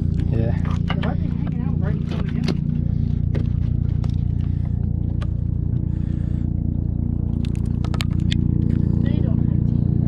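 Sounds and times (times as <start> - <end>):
outboard motor idling: 0.0 - 10.0.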